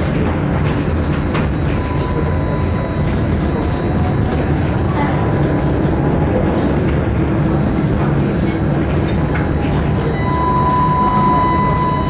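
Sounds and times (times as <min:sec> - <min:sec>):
tram wheels rumbling on rail: 0:00.0 - 0:12.0
faint high whine: 0:10.0 - 0:12.0.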